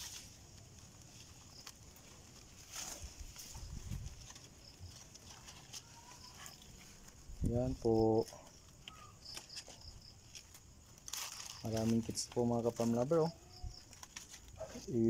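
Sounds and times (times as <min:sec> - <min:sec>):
paws on wire mesh: 0:00.0 - 0:07.3
leaves rustling: 0:00.0 - 0:15.0
rabbits chewing: 0:00.0 - 0:15.0.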